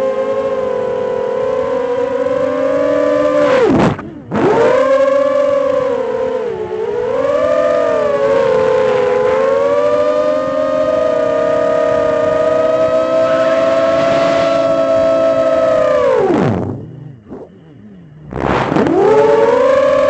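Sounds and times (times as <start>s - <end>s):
quadcopter motors whining: 0.0s - 20.0s.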